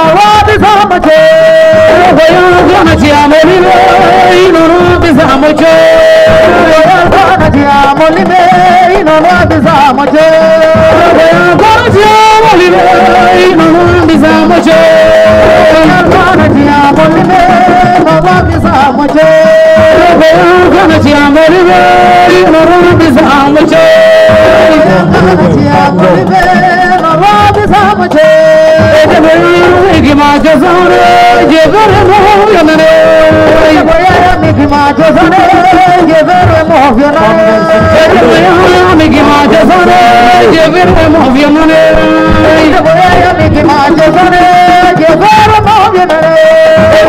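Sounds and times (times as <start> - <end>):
woman singing a cappella: 0.1 - 9.1, 27.4 - 47.0.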